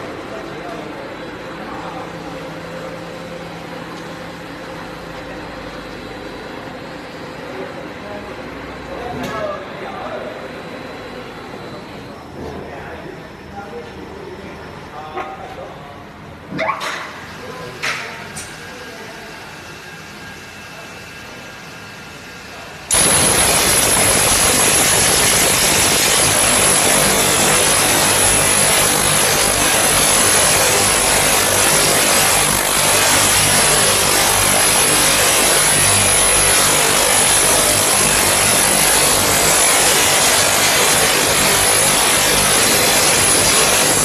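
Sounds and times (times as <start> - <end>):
high-pitched whine: 18.7 - 44.0
circular saw grinding steel duct: 22.9 - 44.0
low motor hum: 22.9 - 44.0.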